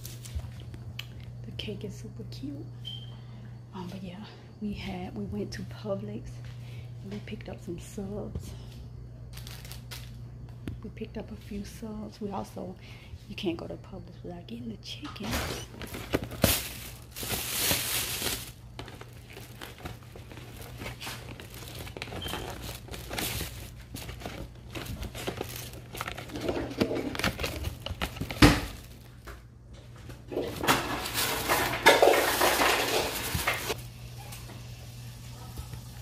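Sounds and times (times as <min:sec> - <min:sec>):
plastic bags rustling: 0:09.3 - 0:10.2, 0:15.2 - 0:34.0.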